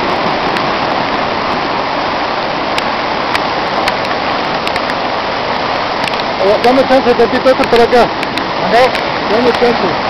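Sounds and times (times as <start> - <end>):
floodwater rushing down a street: 0.0 - 10.0
faint sharp ticks: 7.6 - 9.7.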